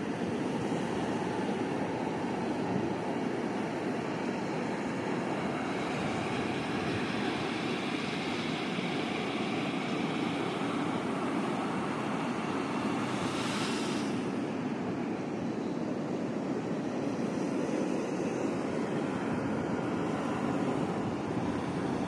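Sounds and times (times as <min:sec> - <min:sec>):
hiss of wave foam: 0:05.2 - 0:14.8.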